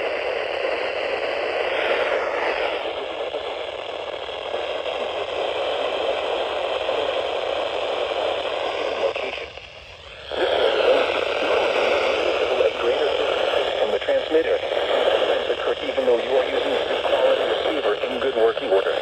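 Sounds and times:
radio static hiss: 0:00.0 - 0:19.0.

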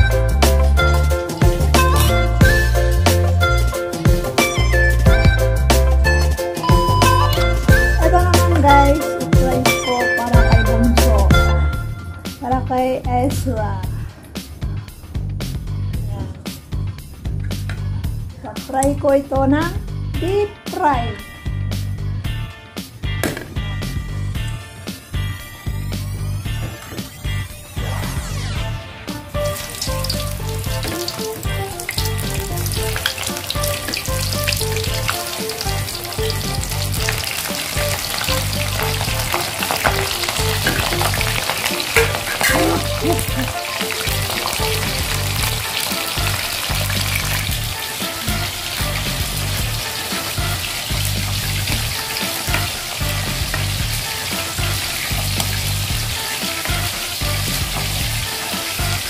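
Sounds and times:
background music with bass beat: 0:00.0 - 0:12.6, 0:13.2 - 0:18.4, 0:19.4 - 0:37.2, 0:37.8 - 0:59.0
food deep-frying in oil: 0:05.8 - 0:11.5, 0:24.4 - 0:59.0.

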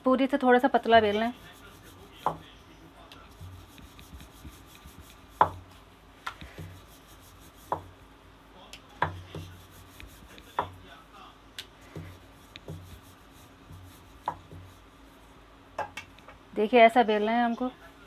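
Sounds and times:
rolling pin rolling dough: 0:00.8 - 0:08.0, 0:08.9 - 0:11.0, 0:11.8 - 0:15.3
rolling pin knocking on board: 0:02.2 - 0:02.5, 0:05.4 - 0:05.6, 0:07.7 - 0:07.9, 0:09.0 - 0:09.6, 0:10.5 - 0:10.8, 0:11.9 - 0:12.9, 0:13.7 - 0:14.7.

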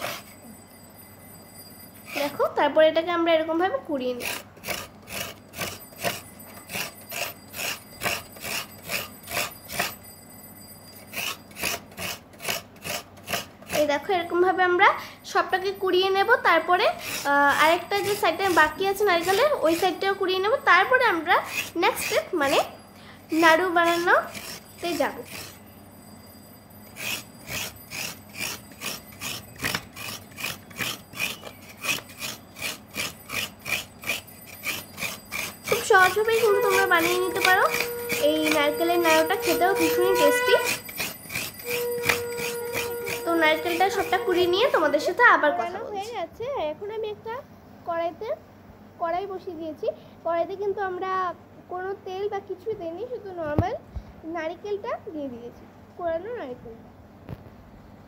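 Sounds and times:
coconut scraper grating: 0:00.0 - 0:00.6, 0:02.0 - 0:02.5, 0:04.0 - 0:10.2, 0:10.8 - 0:14.6, 0:15.5 - 0:25.9, 0:26.7 - 0:46.2.

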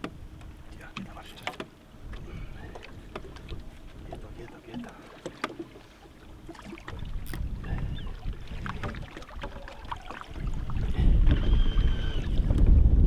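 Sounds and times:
small clicks and knocks: 0:00.0 - 0:01.7
low boat rumble: 0:00.0 - 0:13.0.

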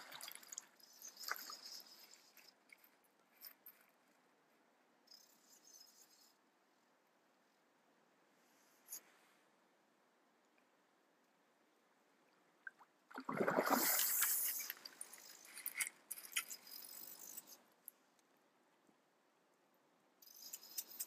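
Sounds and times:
fish splashing at the surface: 0:13.1 - 0:14.7.

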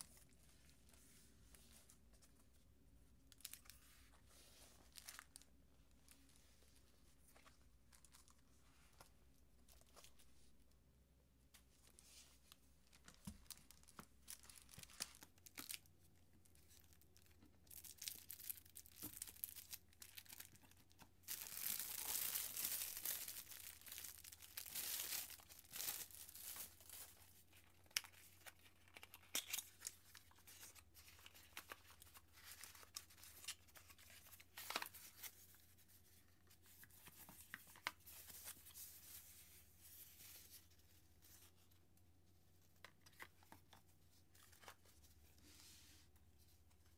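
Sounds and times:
plastic packaging crinkling: 0:16.8 - 0:35.3.

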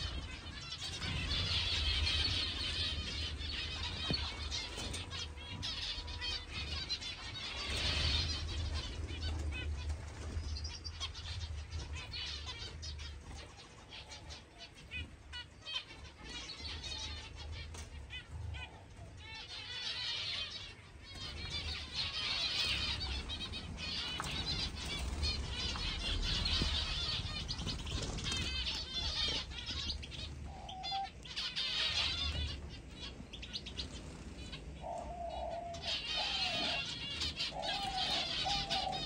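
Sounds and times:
finches chirping: 0:19.2 - 0:39.0
wings flapping: 0:21.2 - 0:30.5.

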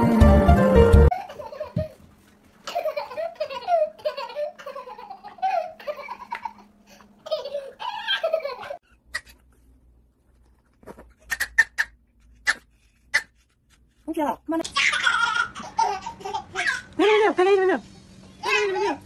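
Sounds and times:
toddler laughing: 0:01.1 - 0:02.0, 0:02.7 - 0:09.3, 0:14.7 - 0:16.9, 0:18.4 - 0:19.0.

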